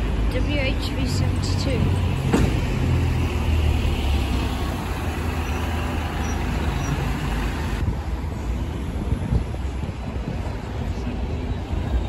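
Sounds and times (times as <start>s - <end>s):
bus driving past rumbling: 0.0s - 8.2s
street traffic: 0.0s - 12.0s.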